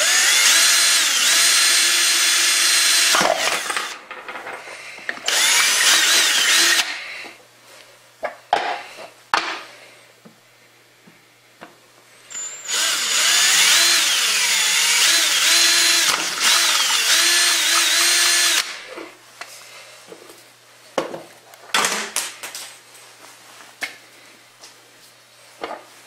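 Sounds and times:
power drill drilling plastic: 0.0 - 4.0, 5.2 - 7.0, 12.3 - 18.8.

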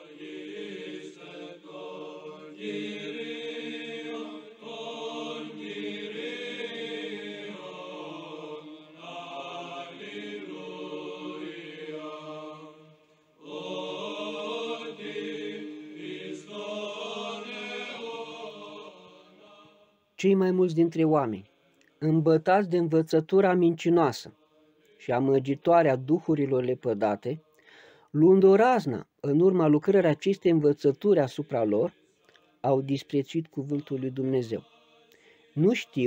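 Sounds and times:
slow vocal chanting: 0.0 - 20.1, 33.8 - 36.0.

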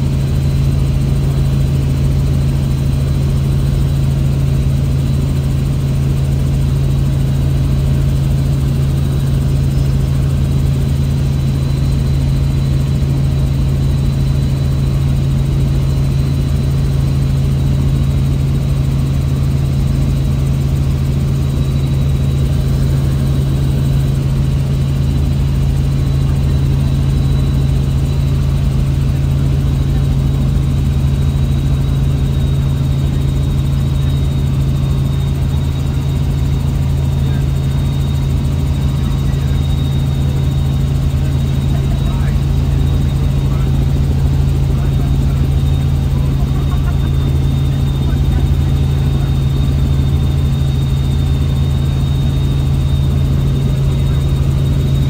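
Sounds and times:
helicopter engine and rotors: 0.0 - 55.0
faint high whine: 19.3 - 55.0.

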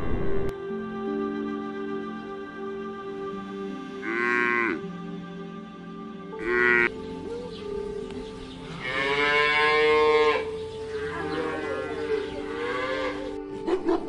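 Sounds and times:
cattle mooing: 4.0 - 4.8, 6.4 - 6.9, 8.7 - 13.4.

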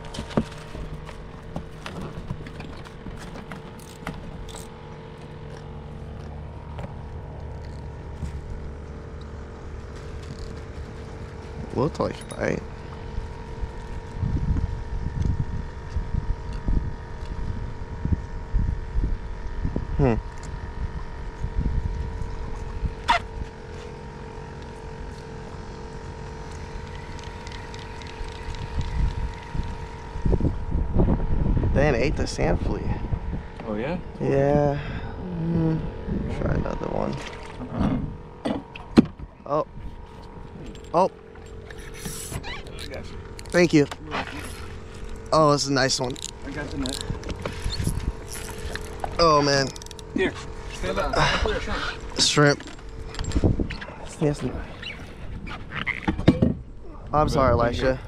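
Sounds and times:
boat motor humming: 0.0 - 58.0
wind rumbling on microphone: 13.0 - 23.7, 27.0 - 34.2, 35.1 - 40.8, 44.4 - 58.0.

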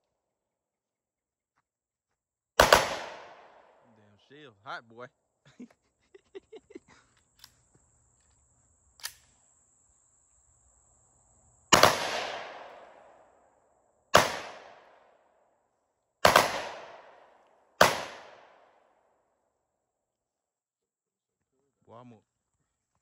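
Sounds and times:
loud gunshots with echo: 2.6 - 3.8, 11.7 - 13.0, 14.2 - 15.0, 16.2 - 17.2, 17.8 - 18.6.

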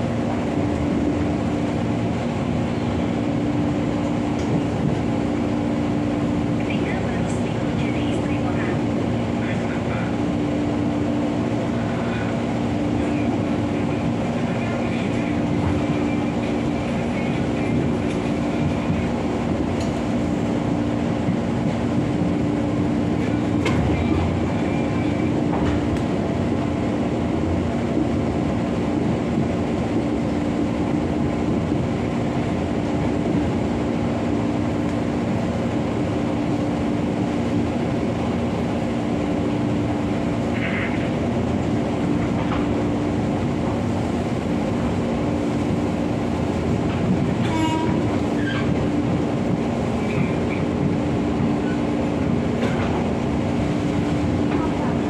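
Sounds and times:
constant hum: 0.0 - 55.0
train wheels rumbling on rails: 0.0 - 55.0.

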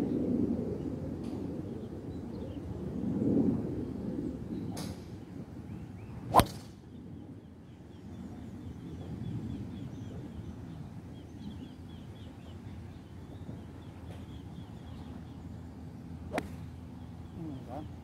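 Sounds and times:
golf club striking ball: 6.3 - 6.7, 16.3 - 16.8.

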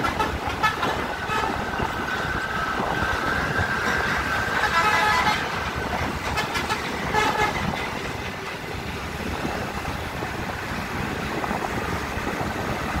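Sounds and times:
road traffic rumble: 0.0 - 13.0
vehicle horn: 4.6 - 5.5, 6.3 - 7.6.

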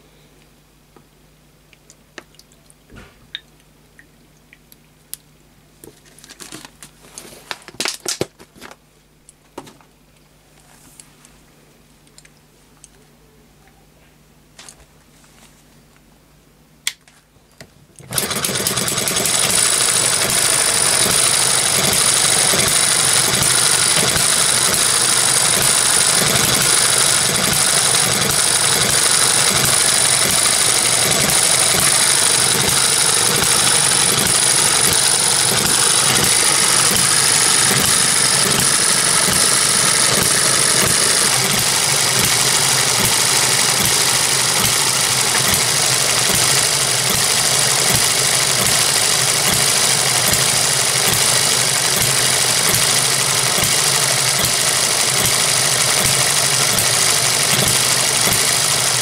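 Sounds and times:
miniature engine running: 18.0 - 59.0.

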